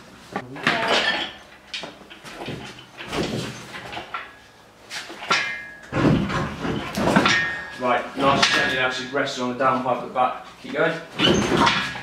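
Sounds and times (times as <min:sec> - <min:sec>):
metal clunks and scrapes: 0:02.1 - 0:08.9, 0:11.1 - 0:12.0.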